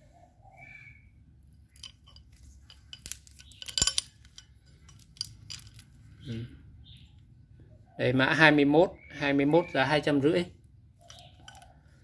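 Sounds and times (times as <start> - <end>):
chain wrench metal clinks: 1.7 - 5.9, 11.0 - 11.7.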